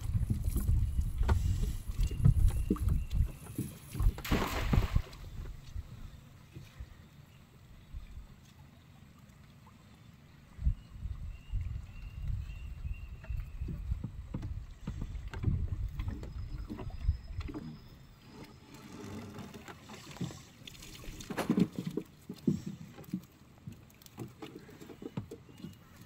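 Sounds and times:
wind rumble on microphone: 0:00.0 - 0:06.2, 0:10.5 - 0:17.5.

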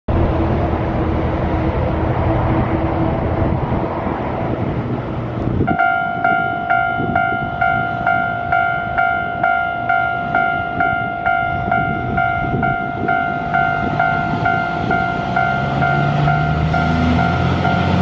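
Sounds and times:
loud low rumble: 0:00.1 - 0:18.0
level-crossing warning bell: 0:05.7 - 0:18.0.

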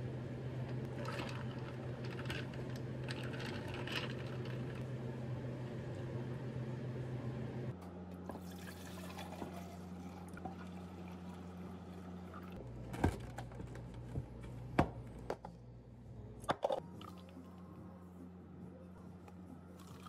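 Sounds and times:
steady low hum: 0:00.0 - 0:20.0
liquid pouring into cups: 0:00.8 - 0:04.8, 0:08.4 - 0:12.6, 0:19.8 - 0:20.0.

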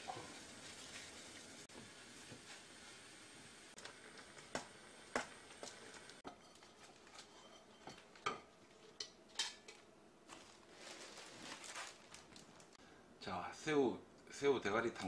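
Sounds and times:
noodles boiling in a pot: 0:00.0 - 0:12.8.

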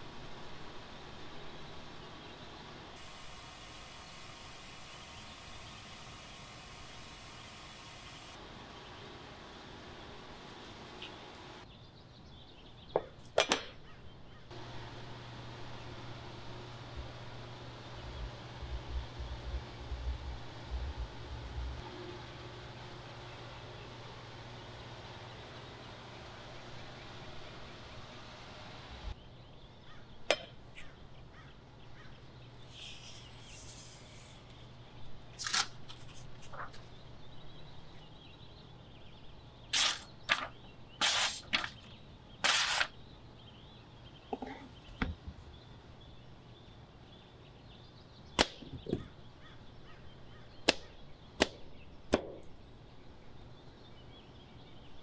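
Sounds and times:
steady hiss: 0:03.0 - 0:08.4
sharp cracks and knocks: 0:48.3 - 0:49.1, 0:50.6 - 0:52.6.

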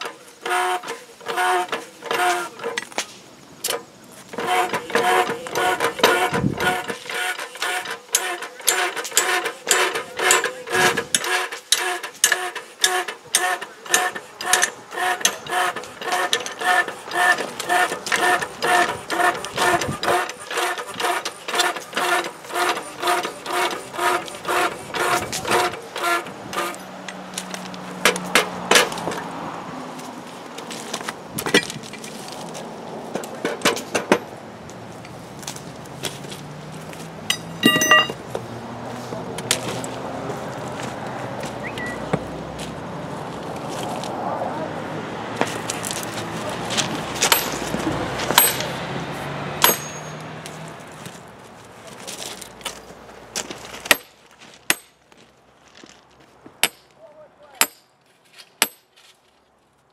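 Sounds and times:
metal clanks: 0:00.0 - 0:27.2, 0:37.2 - 0:38.3, 0:47.2 - 0:48.8, 0:49.6 - 0:50.3
sledgehammer striking steel: 0:37.3 - 0:38.2, 0:47.2 - 0:48.8, 0:49.6 - 0:50.2, 0:53.9 - 0:54.1, 0:54.7 - 0:55.0, 0:56.6 - 0:56.9, 0:57.6 - 0:57.9, 0:58.6 - 0:58.9.

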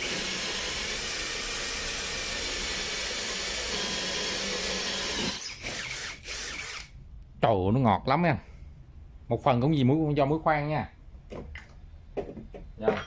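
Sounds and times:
drill grinding into concrete: 0:00.0 - 0:06.9.

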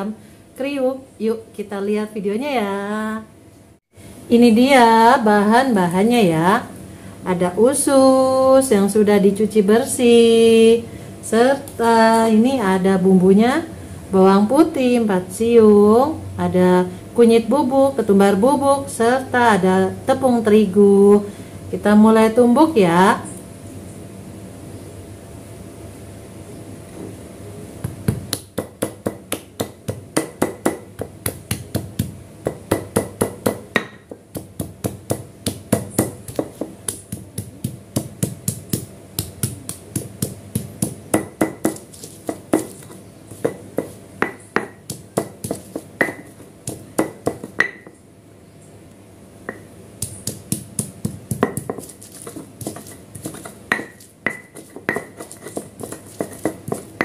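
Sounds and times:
stone pestle pounding in mortar: 0:27.8 - 0:48.0, 0:49.5 - 0:57.0.

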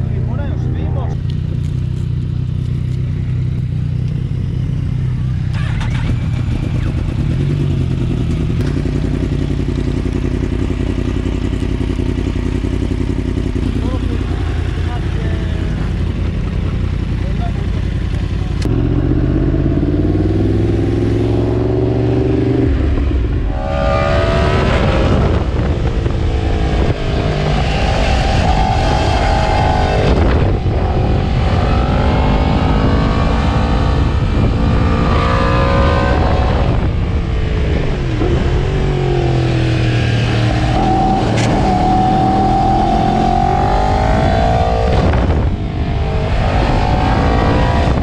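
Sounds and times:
motorcycle engine accelerating: 0:00.0 - 0:48.0
wind on microphone: 0:18.6 - 0:48.0.

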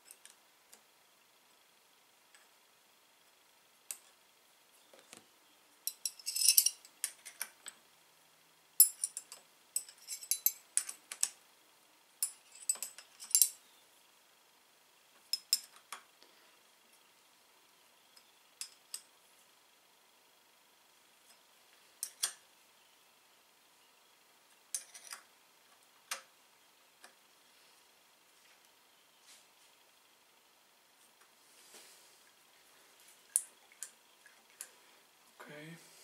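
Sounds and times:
spanner clinking on bolts: 0:05.9 - 0:07.2, 0:08.8 - 0:11.3, 0:12.2 - 0:13.6.

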